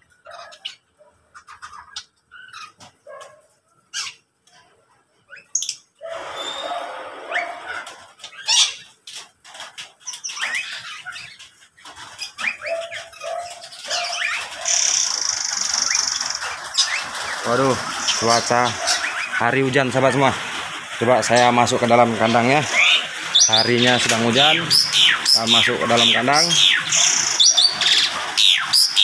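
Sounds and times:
birds squawking: 0:00.0 - 0:04.3, 0:05.3 - 0:29.0
birds chirping: 0:00.0 - 0:29.0
bird whistles: 0:06.3 - 0:07.6.

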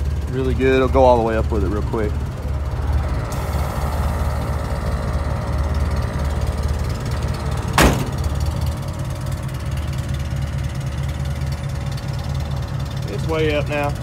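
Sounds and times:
engine idling: 0:00.0 - 0:14.0
sharp thunk: 0:07.7 - 0:08.4.

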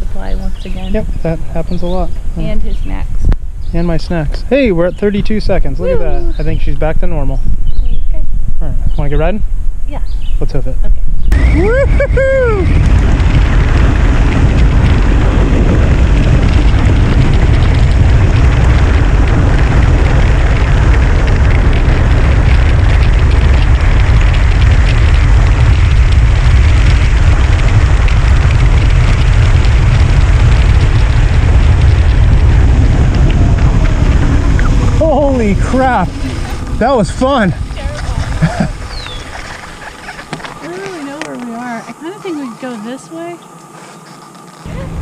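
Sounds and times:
wind buffeting microphone: 0:00.0 - 0:45.0
tyres crunching over gravel: 0:12.8 - 0:44.7.

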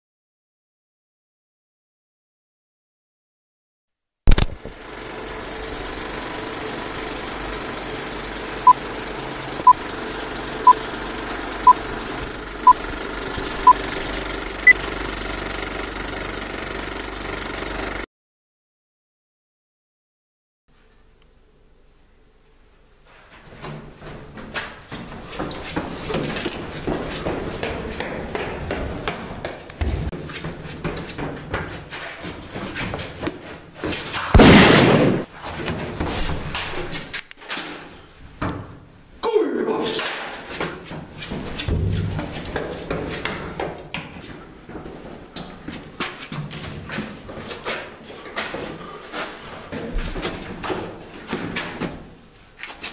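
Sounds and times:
film projector clattering: 0:04.3 - 0:18.1
loud bang: 0:34.4 - 0:35.3.

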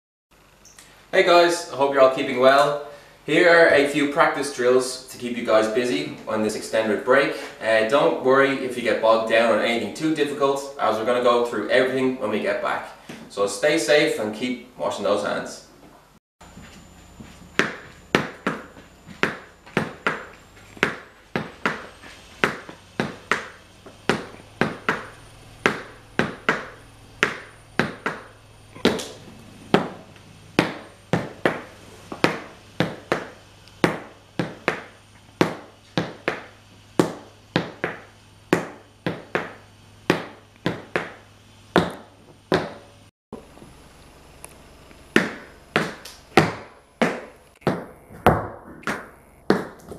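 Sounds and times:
hard shoes tapping on wood floor: 0:16.6 - 0:30.0, 0:30.6 - 0:41.2, 0:41.8 - 0:42.8, 0:45.1 - 0:49.9.

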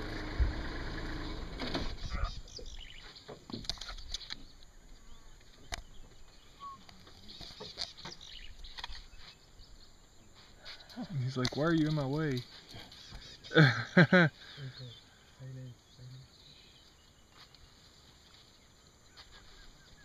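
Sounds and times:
low rumble: 0:00.0 - 0:02.8
twigs rustling and snapping: 0:06.8 - 0:09.3.

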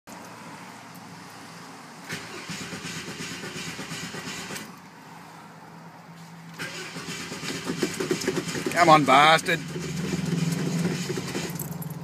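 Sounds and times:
starter motor cranking engine: 0:02.1 - 0:04.7, 0:06.6 - 0:11.7.

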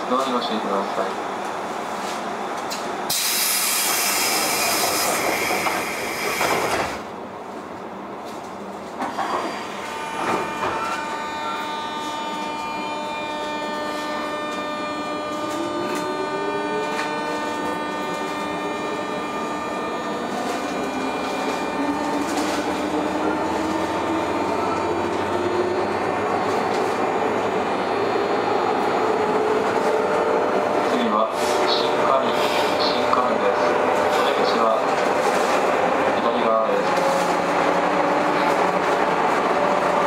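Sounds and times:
train clunks: 0:02.6 - 0:07.2, 0:08.2 - 0:11.6, 0:15.2 - 0:27.5
traction motor whine rising: 0:09.8 - 0:34.0.

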